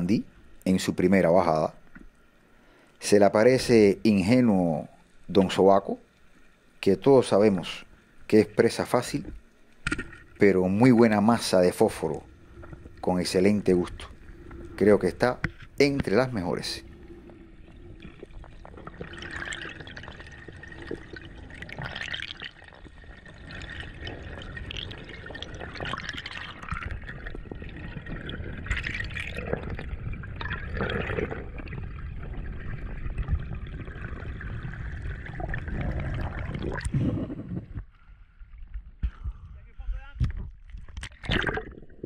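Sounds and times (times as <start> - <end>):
water sloshing and gurgling: 1.7 - 39.5, 40.2 - 42.0.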